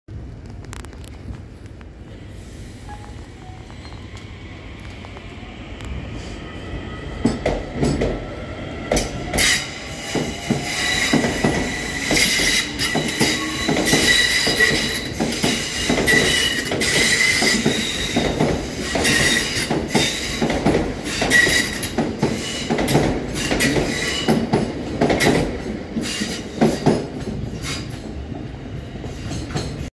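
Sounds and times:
train wheels squealing: 8.9s - 24.4s.

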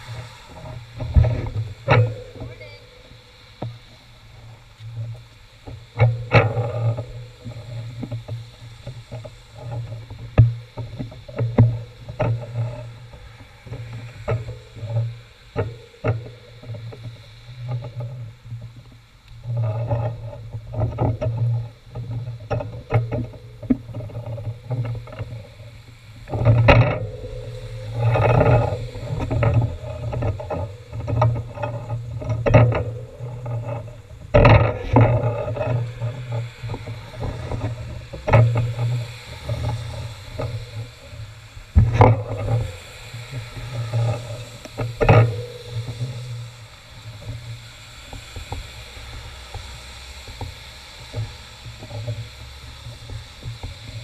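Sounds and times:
traffic on wet road: 0.0s - 0.6s, 47.9s - 52.8s.

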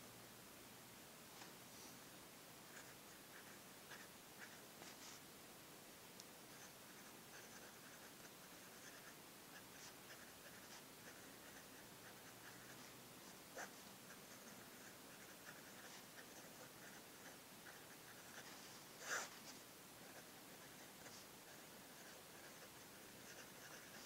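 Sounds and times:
pen nib scratching on paper: 6.5s - 24.0s.

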